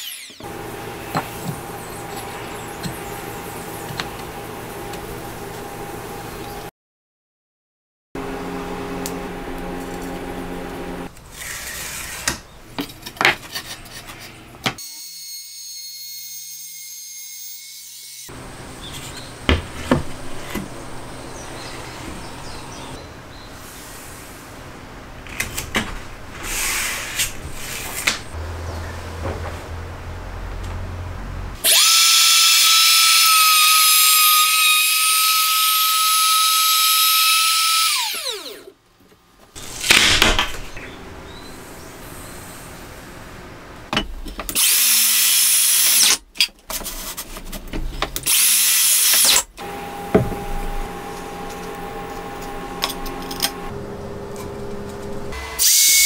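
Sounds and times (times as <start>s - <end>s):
router whining: 0.0s - 6.7s, 31.6s - 38.8s, 48.2s - 56.0s
wood and tools knocking: 18.9s - 20.8s, 50.1s - 50.8s.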